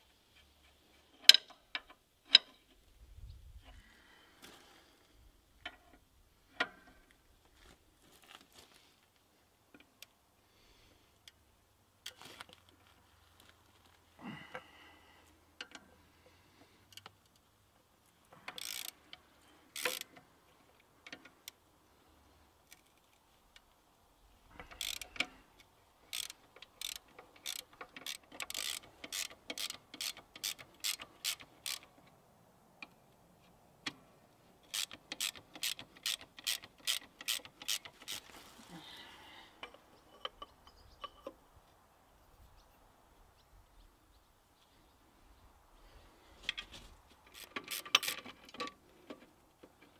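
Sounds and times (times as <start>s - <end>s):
socket ratchet clicking: 18.5s - 20.1s, 24.6s - 25.4s, 26.1s - 32.0s, 34.6s - 38.2s, 47.3s - 48.7s.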